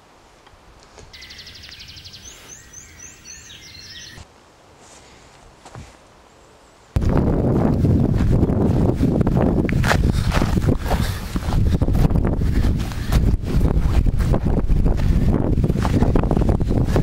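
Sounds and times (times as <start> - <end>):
rapid high chirping calls: 1.2 - 4.2
wind buffeting microphone: 7.0 - 17.0.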